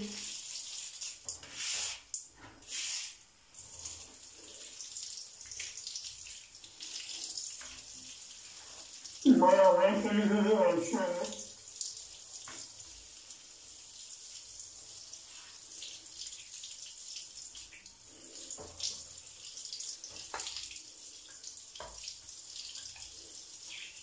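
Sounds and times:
shower water spraying on metal filter: 0.0s - 4.8s, 12.6s - 16.6s.

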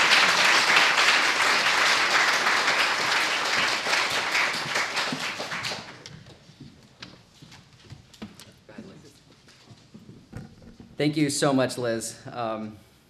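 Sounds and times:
audience applause: 0.0s - 6.1s.

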